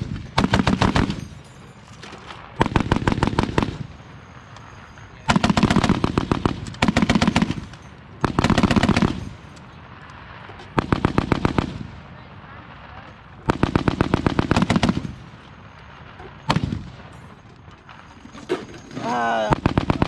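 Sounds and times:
machine gun bursts: 0:00.0 - 0:01.4, 0:02.0 - 0:03.9, 0:05.3 - 0:09.4, 0:13.5 - 0:15.2, 0:18.1 - 0:20.0.

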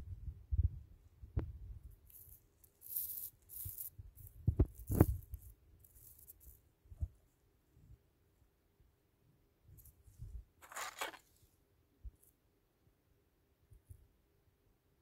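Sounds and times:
paper rustling: 0:10.6 - 0:11.4.

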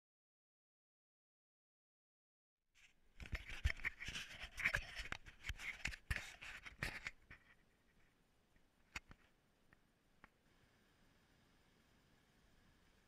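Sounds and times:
scratchy scrapes and clicks: 0:02.8 - 0:08.2, 0:08.9 - 0:09.3.

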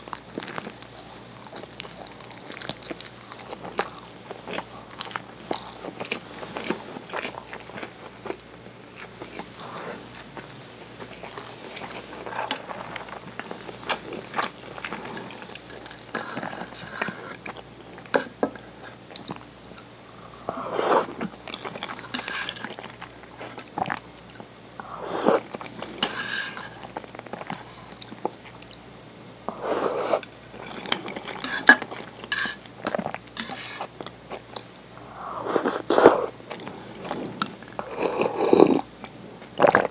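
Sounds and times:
chewing and mouth clicks: 0:25.4 - 0:28.8
sipping and swallowing: 0:35.5 - 0:39.9.

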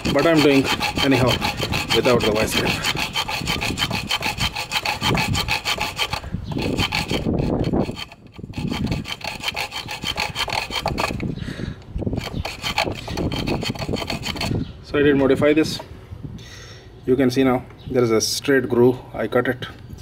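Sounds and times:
hacksaw rasping on metal: 0:00.0 - 0:11.4, 0:12.1 - 0:14.7.

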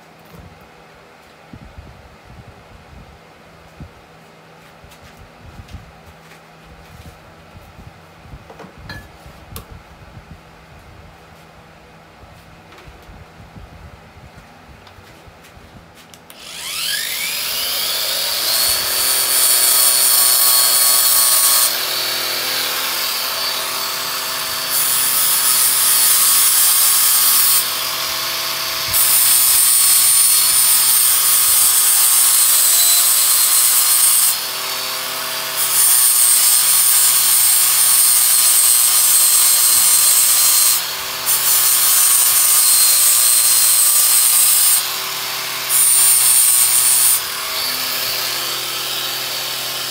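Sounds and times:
electric sander motor whine: 0:16.3 - 0:24.7.

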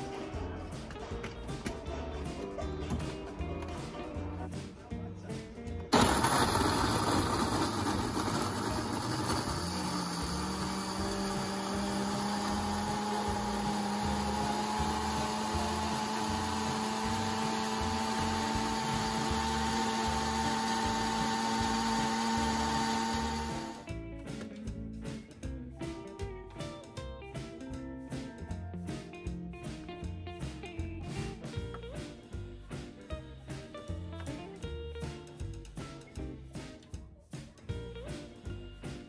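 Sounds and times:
background music with beat: 0:00.0 - 0:08.3, 0:23.8 - 0:39.0
blender running: 0:05.9 - 0:23.9.

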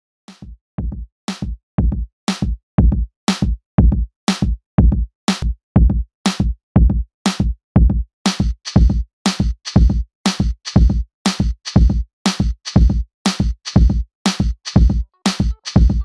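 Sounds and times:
electronic music with drum-machine beat: 0:08.3 - 0:16.0.

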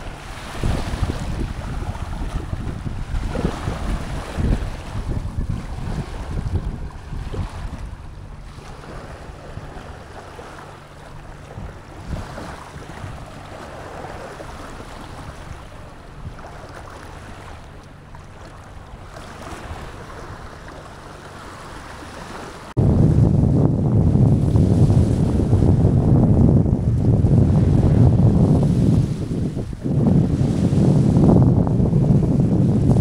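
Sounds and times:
motorboat engine running: 0:00.0 - 0:33.0
water rushing along hull: 0:00.0 - 0:33.0
wind buffeting microphone: 0:00.0 - 0:33.0.

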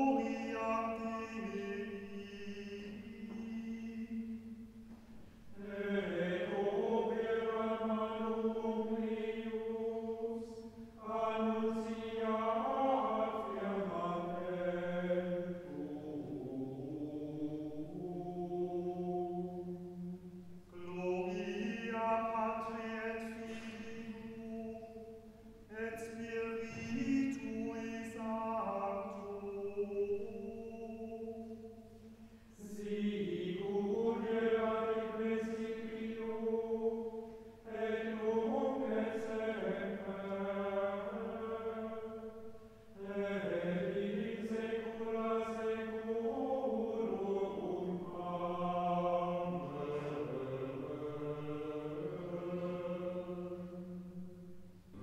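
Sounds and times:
slow choral singing: 0:00.0 - 0:55.0.

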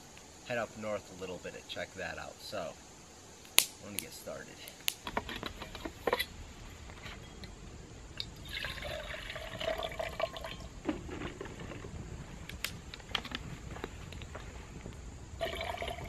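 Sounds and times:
water pouring into metal pot: 0:08.4 - 0:10.7, 0:15.4 - 0:16.0
handling clicks and knocks: 0:12.5 - 0:13.4.

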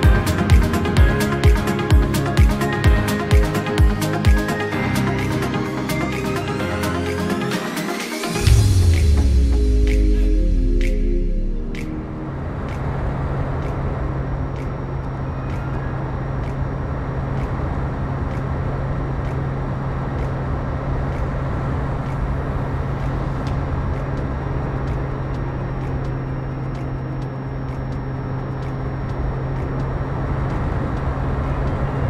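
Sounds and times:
electric motor and propeller hum: 0:12.3 - 0:32.0.

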